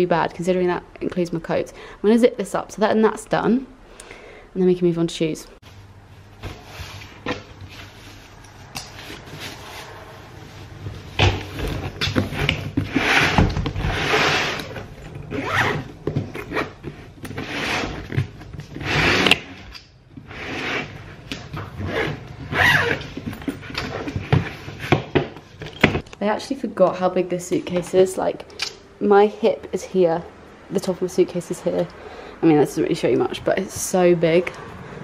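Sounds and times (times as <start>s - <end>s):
suitcase zip zipping: 11.5s - 19.6s, 20.2s - 21.1s, 21.7s - 24.9s.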